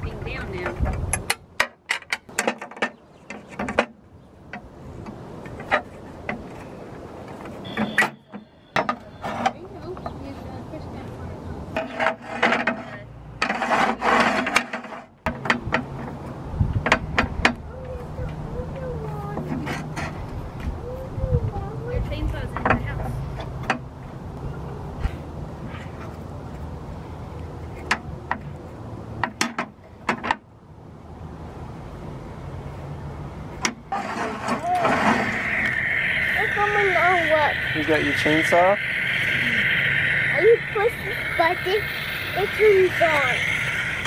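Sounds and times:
sharp clicks and knocks: 0.5 - 6.6, 13.4 - 17.6, 29.2 - 30.5
metal scraping on saw table: 11.8 - 15.2, 33.9 - 36.8
loud noise with wavering tone: 33.9 - 44.0
steady low hum: 34.9 - 44.0.

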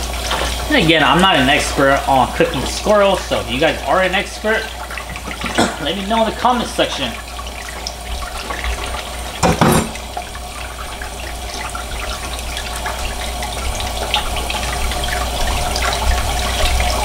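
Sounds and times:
faucet water running into sink: 0.0 - 17.0
loud knock: 9.4 - 10.0.

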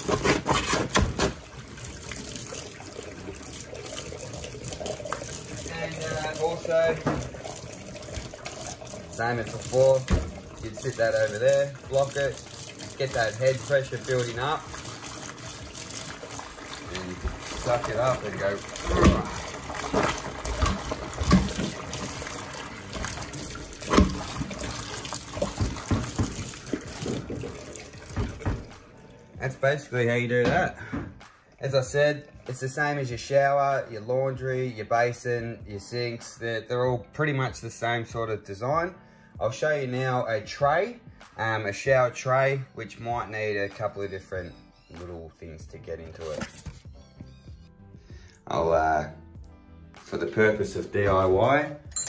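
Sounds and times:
tap running into sink: 0.0 - 2.6, 4.7 - 28.8
plunger squelching and splashing: 0.0 - 29.4
water trickling down drain: 0.0 - 29.9.

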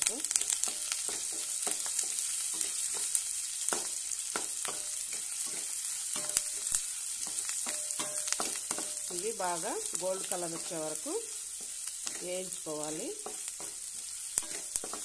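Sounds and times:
food sizzling in hot oil: 0.0 - 15.0
wooden spatula scraping a pan: 3.8 - 15.0.

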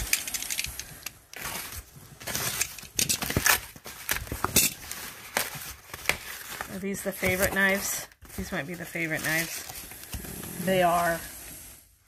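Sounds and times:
cardboard rustling and scraping: 1.4 - 12.0.

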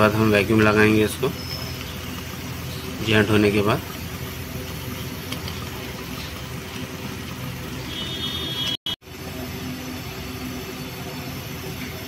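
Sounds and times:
torch flame hissing: 0.1 - 9.5.

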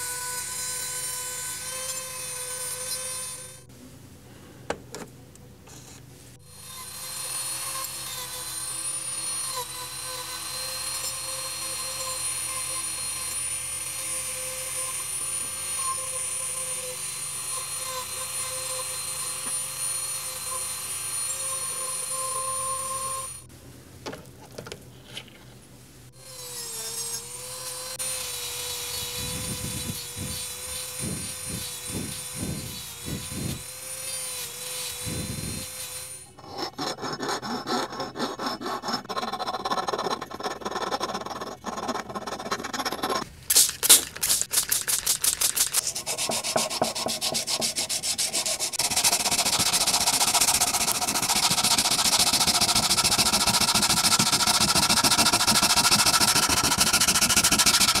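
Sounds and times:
rotary tool whining: 26.2 - 58.0
cutting disc against metal: 36.4 - 58.0.

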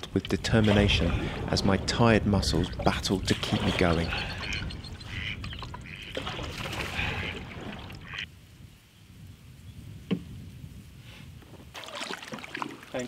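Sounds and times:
low wind rumble: 0.0 - 11.8
water splashing off paddle: 6.1 - 8.2.

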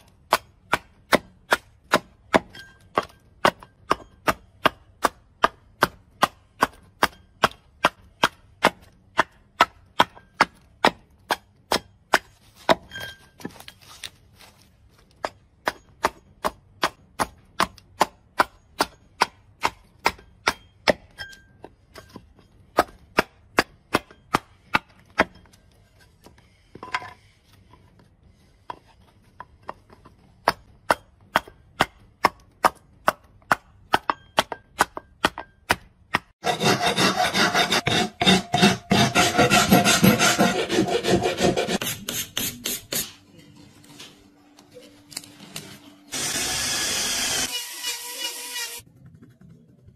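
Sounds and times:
axe chopping wood: 0.0 - 14.5, 15.1 - 25.6, 29.6 - 36.4.

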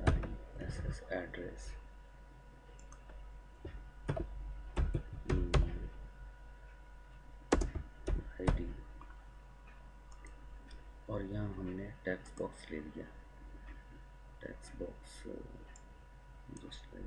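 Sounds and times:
faint steady hum: 0.0 - 17.0
computer keyboard typing: 7.5 - 8.7.

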